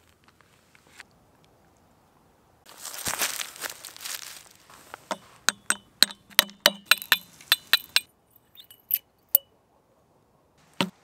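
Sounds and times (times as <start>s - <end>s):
glass bulb base clinking on log: 5.1s - 9.5s
faint glass clinks: 6.9s - 9.5s.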